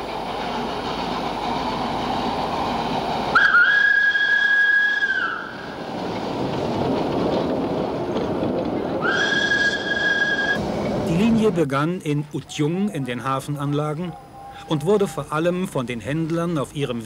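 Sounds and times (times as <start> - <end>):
tram running noise: 0.0 - 17.0
steam whistle: 3.3 - 5.7, 9.0 - 10.6.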